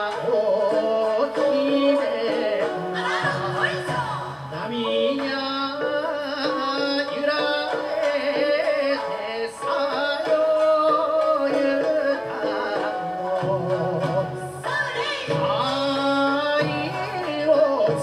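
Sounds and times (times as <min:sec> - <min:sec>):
man singing folk song: 0:00.0 - 0:03.5, 0:04.5 - 0:14.5
drums: 0:00.0 - 0:18.0
shakuhachi flute: 0:00.0 - 0:18.0
shamisen: 0:00.0 - 0:18.0.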